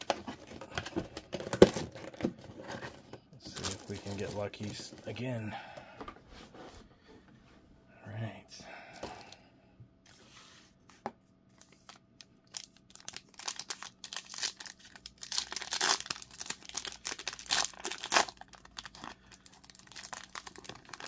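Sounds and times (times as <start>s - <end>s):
foil wrapper tearing and crinkling: 11.6s - 21.0s.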